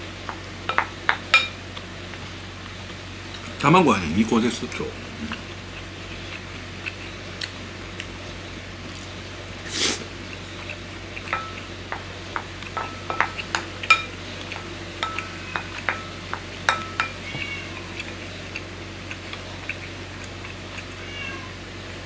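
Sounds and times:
metal spoon clinking ceramic bowl: 12.8 - 14.2, 15.0 - 17.2.

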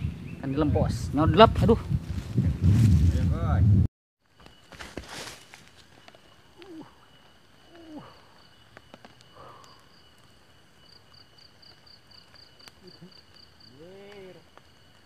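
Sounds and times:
insect chirping: 4.2 - 15.0.

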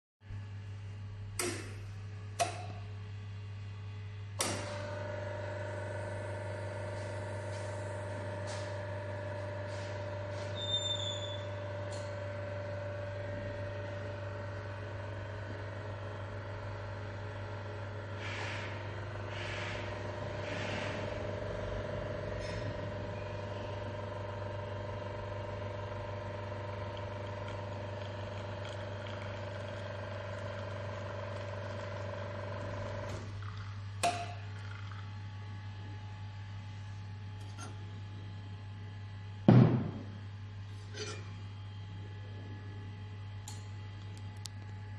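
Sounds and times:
espresso machine pump humming: 4.0 - 39.3
loud knock: 39.5 - 40.2.

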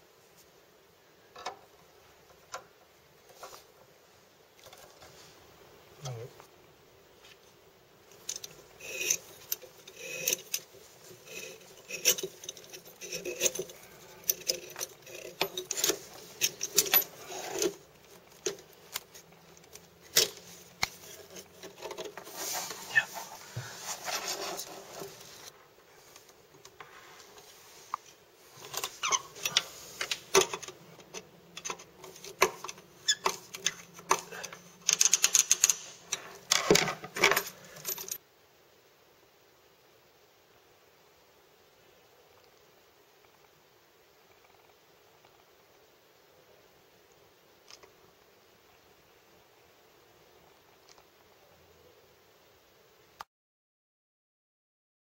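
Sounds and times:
metallic hose rattle: 8.1 - 22.8.

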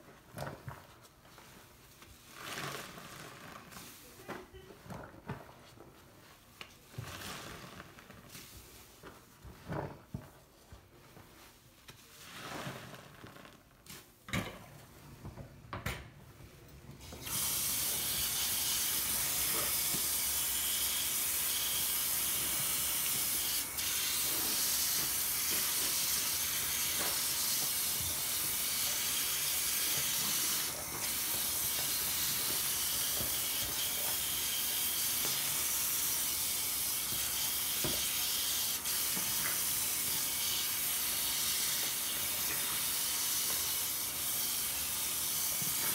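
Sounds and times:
sponge squelching in suds: 11.1 - 14.2
tap water running: 17.0 - 45.9.

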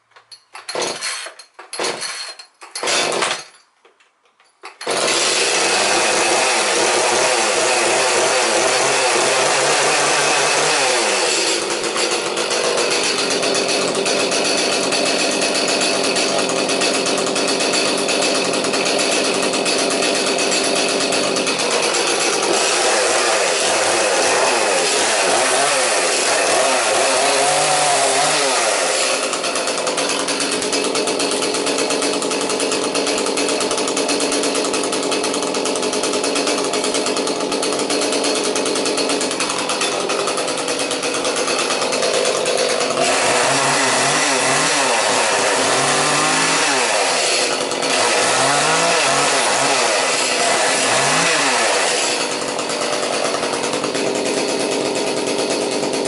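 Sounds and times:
chainsaw revving: 0.7 - 3.6, 4.8 - 56.0.

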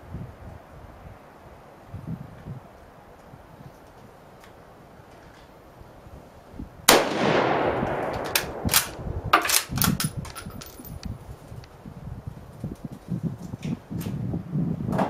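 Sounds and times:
rifle shot with echo: 6.9 - 9.8
rifle bolt clacking: 7.9 - 11.1.

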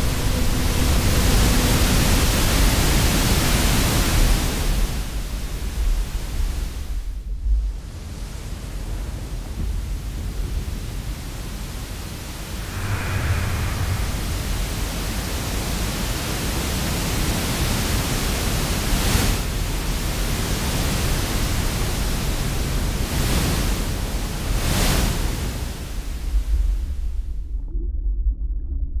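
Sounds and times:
ocean wave breaking: 12.5 - 16.2.

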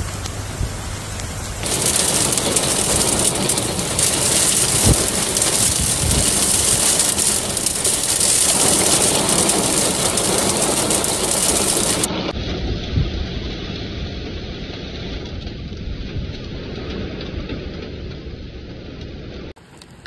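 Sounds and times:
torrential rain pouring: 0.0 - 15.3.

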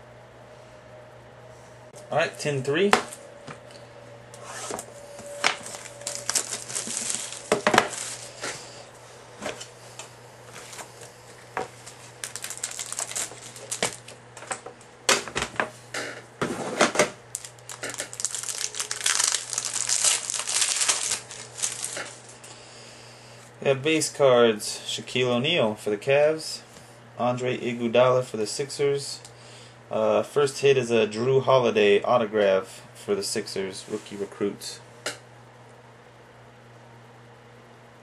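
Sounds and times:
plastic wrapper rustling: 5.4 - 8.7, 11.6 - 14.7, 17.3 - 22.5.

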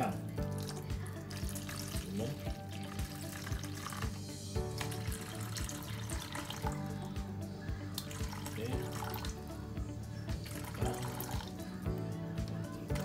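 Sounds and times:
background music with steady beat: 0.0 - 13.0
water pouring into rice: 0.6 - 7.1, 8.0 - 9.4.

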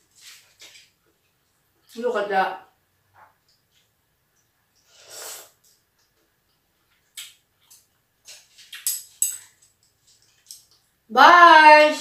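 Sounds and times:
slurping noodles: 4.9 - 5.6
mouth clicks and smacks: 5.6 - 10.9.

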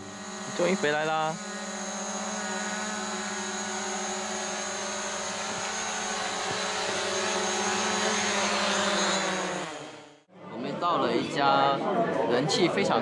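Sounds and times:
drone propellers buzzing: 0.0 - 10.3.

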